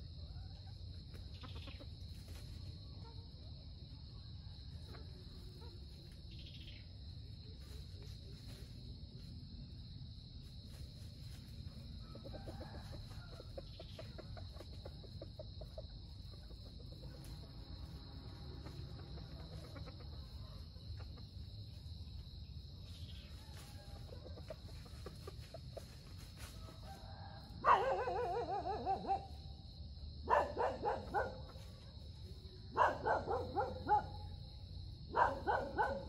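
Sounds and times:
rooster clucking: 0.6s - 2.1s, 12.1s - 21.6s, 23.3s - 29.3s
rooster crowing: 11.9s - 14.2s, 23.2s - 24.2s, 26.4s - 29.4s.

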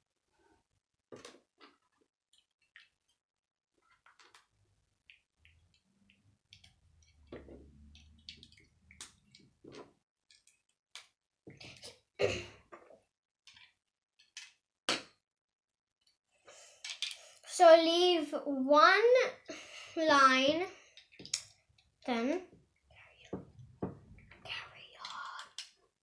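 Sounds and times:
plastic bricks clicking: 16.8s - 17.3s, 25.0s - 25.8s.

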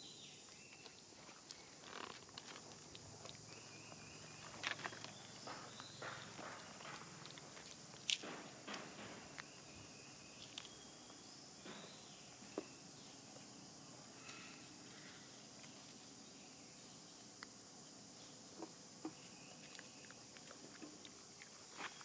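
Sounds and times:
high-pitched insect drone: 9.8s - 15.6s.

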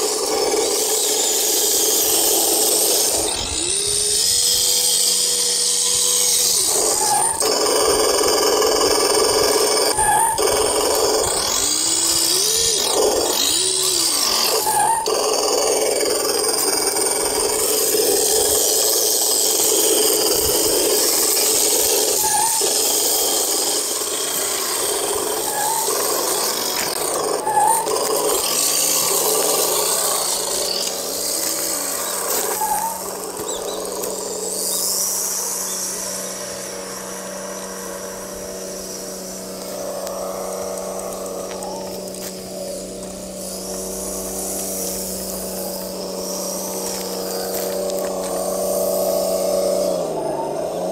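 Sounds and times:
toy truck electric motor whining: 0.0s - 50.9s.

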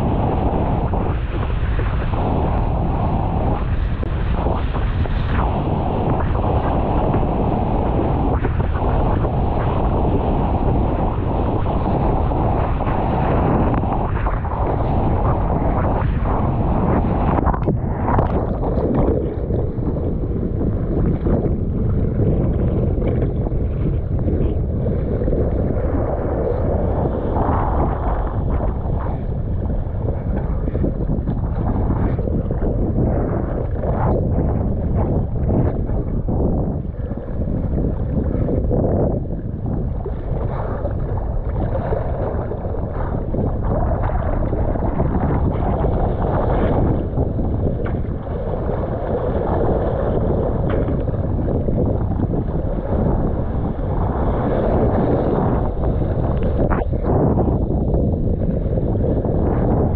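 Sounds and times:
choppy seawater splashing: 0.0s - 59.9s
strong wind on microphone: 0.0s - 59.9s.

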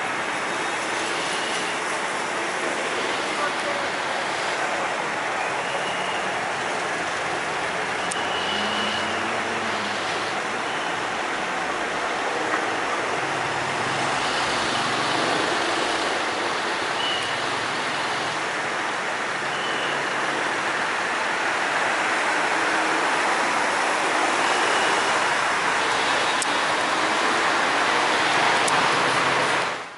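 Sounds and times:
city background noise: 0.0s - 29.9s.

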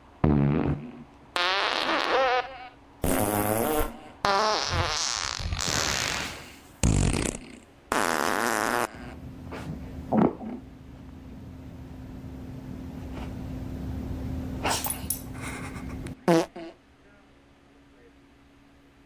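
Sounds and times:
farts: 0.2s - 10.6s, 16.2s - 16.8s.

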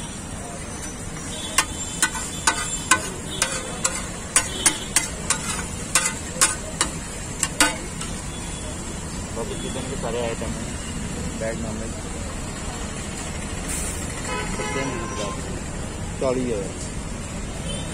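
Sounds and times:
food frying: 0.6s - 8.4s
metal spatula clacking on steel: 0.8s - 8.3s.

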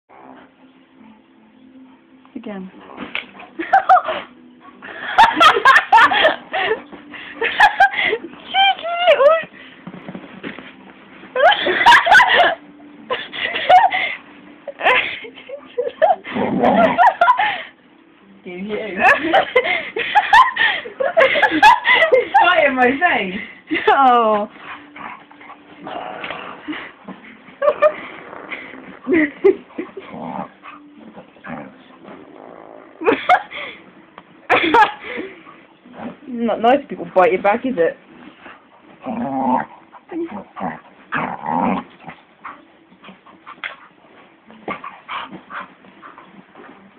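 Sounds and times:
dog growling and yipping: 0.1s - 0.6s, 2.8s - 4.4s, 16.0s - 17.4s, 24.6s - 27.0s, 27.6s - 33.4s, 38.9s - 43.9s
woman laughing and squealing: 7.4s - 9.5s.

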